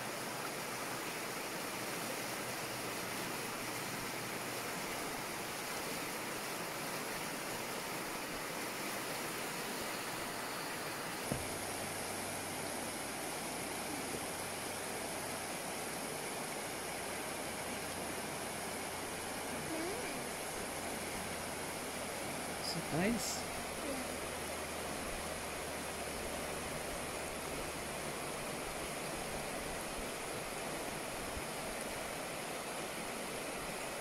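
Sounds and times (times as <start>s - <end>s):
river rushing over rocks: 0.0s - 34.0s
brief thump: 11.2s - 11.6s.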